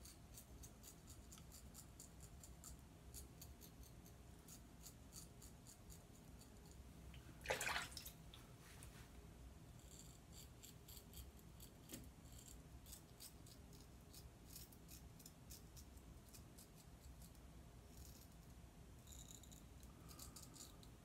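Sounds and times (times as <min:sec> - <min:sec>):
razor scraping stubble: 0:09.8 - 0:17.3.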